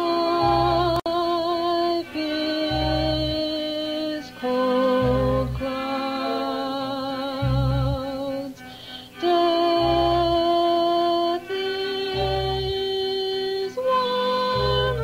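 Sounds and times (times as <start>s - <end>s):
low bass notes: 0.4s - 1.0s, 2.7s - 3.4s, 5.0s - 5.7s, 7.4s - 8.1s, 9.8s - 10.4s, 12.1s - 12.8s, 14.6s - 15.0s.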